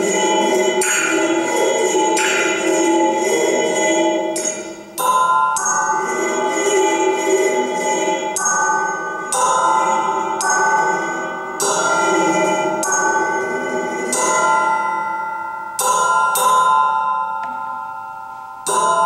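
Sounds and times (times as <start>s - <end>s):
metal rods struck ringing: 8.4s - 19.0s.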